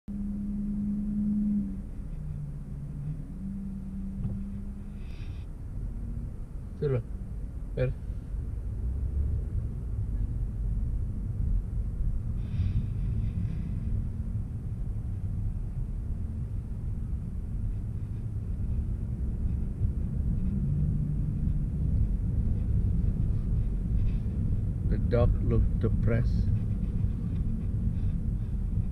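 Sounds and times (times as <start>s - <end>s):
car engine and tyre drone: 0.0s - 28.9s.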